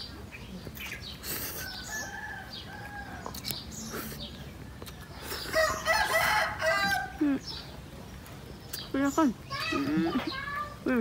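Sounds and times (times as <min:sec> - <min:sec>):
rooster crowing: 0:01.6 - 0:03.3, 0:05.6 - 0:07.2.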